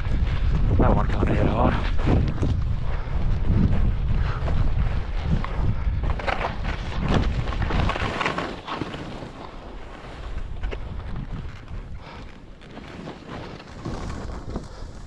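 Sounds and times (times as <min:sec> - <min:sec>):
wind buffeting microphone: 0:00.0 - 0:08.7, 0:09.7 - 0:12.6.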